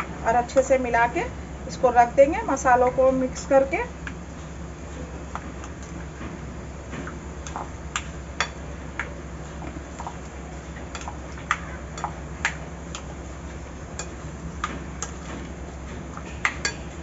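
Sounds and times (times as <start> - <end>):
low steady hum: 0.0 - 17.0
spoon clicking against a bowl: 14.0 - 14.2.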